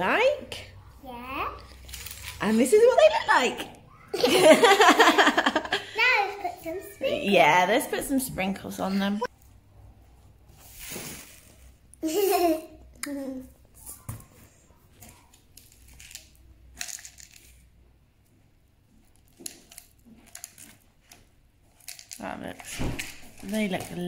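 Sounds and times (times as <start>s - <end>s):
sprinkles scattering onto paper: 15.6s - 17.6s, 21.8s - 24.0s
sprinkles rattling in glass jar: 15.8s - 17.6s, 21.8s - 22.5s.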